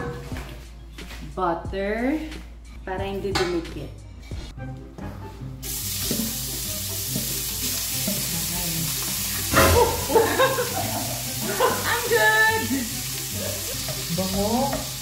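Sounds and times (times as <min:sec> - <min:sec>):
meat sizzling in a frying pan: 0:05.6 - 0:15.0
person laughing: 0:09.5 - 0:14.2.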